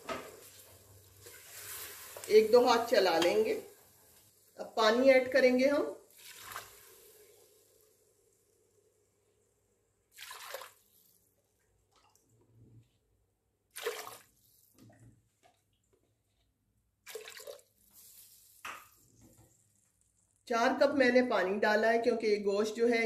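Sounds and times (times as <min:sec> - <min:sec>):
water splashing into pot: 0:06.0 - 0:07.8, 0:10.1 - 0:11.1, 0:13.7 - 0:14.5, 0:17.0 - 0:19.0.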